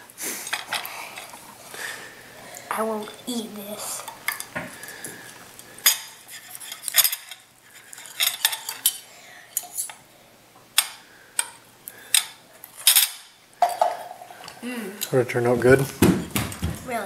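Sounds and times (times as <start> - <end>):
knife and fork scraping a plate: 6.0 - 9.0.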